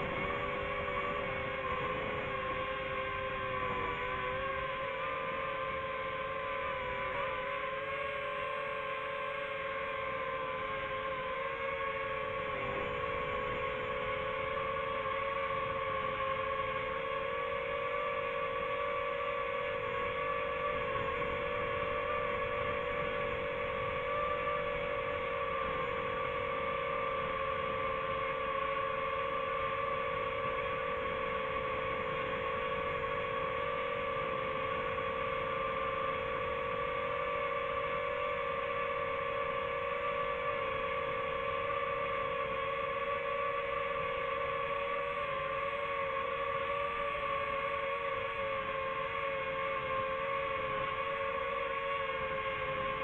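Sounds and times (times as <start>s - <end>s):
drone propellers whining: 0.0s - 53.0s.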